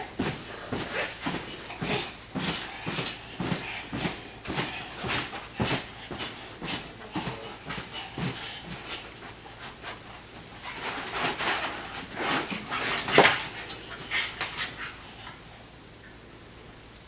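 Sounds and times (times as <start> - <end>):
dog panting: 0.0 - 15.5.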